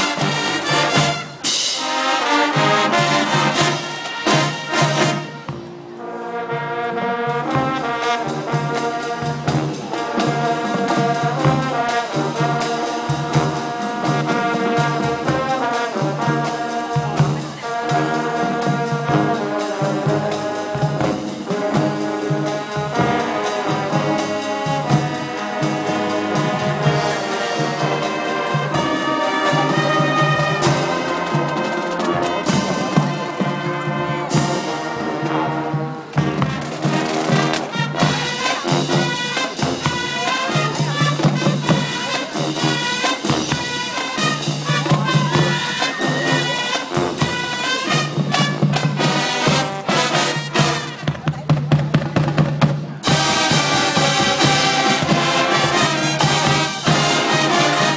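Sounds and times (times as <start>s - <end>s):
marching drum beat: 0.0s - 5.9s, 6.5s - 57.9s
brass horns holding chords: 0.0s - 51.0s, 53.0s - 57.9s.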